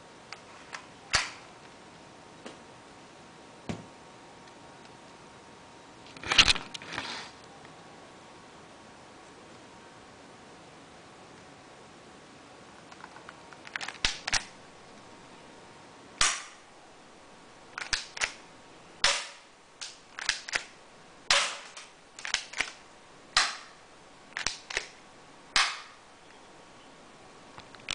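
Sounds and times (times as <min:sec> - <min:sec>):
small clicks: 0:12.8 - 0:14.5, 0:17.8 - 0:18.4, 0:21.7 - 0:22.8
bb gun pops: 0:16.2 - 0:16.6, 0:19.0 - 0:20.7, 0:21.3 - 0:22.8, 0:23.4 - 0:23.8, 0:25.6 - 0:26.0.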